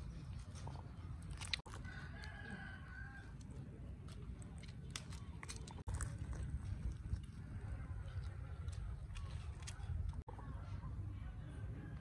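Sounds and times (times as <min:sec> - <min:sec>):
rooster crowing: 0:01.8 - 0:03.3
steady low rumble: 0:03.2 - 0:12.0.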